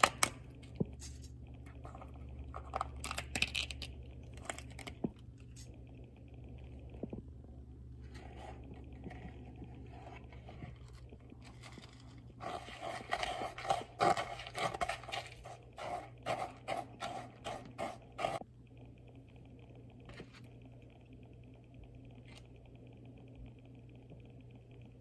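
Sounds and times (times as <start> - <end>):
plastic knife stirring crumbs: 8.1 - 18.4.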